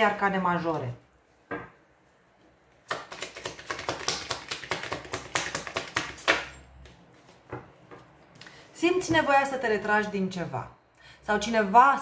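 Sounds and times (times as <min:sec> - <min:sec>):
cards being shuffled: 0:02.9 - 0:07.4.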